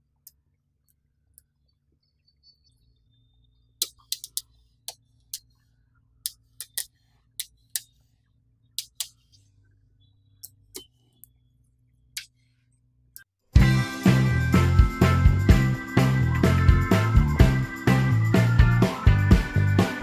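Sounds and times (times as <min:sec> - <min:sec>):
magnetic balls clicking: 0:03.8 - 0:05.6, 0:06.2 - 0:08.1, 0:08.7 - 0:09.4, 0:10.4 - 0:12.4.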